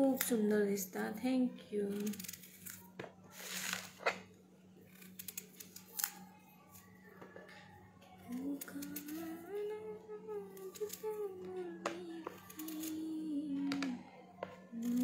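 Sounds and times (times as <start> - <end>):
steady low hum: 3.9 - 15.0.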